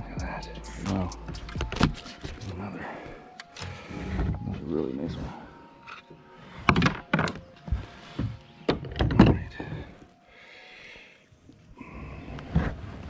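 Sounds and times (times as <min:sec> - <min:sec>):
jacket sleeve rubbing camera: 0:00.8 - 0:02.5.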